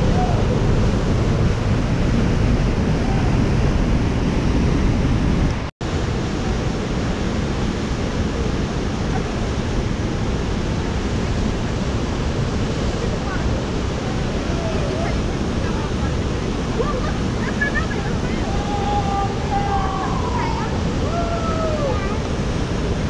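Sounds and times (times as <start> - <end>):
rushing whitewater: 0.0 - 23.0.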